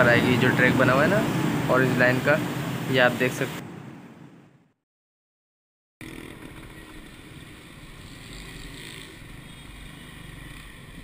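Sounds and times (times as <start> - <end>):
motorcycles passing: 0.0 - 3.6
trucks passing: 0.0 - 4.2
road traffic hum: 0.0 - 4.6, 6.0 - 11.0.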